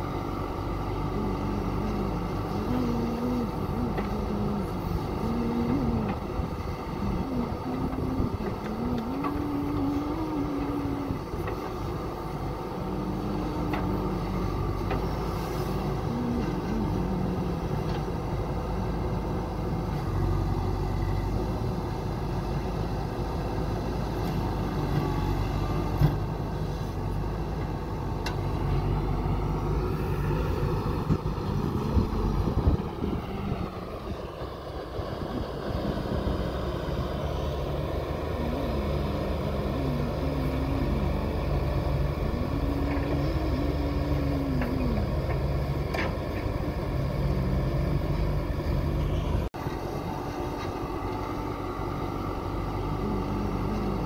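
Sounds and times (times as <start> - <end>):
diesel engine under load: 0.0 - 54.0
clunks: 44.4 - 46.5.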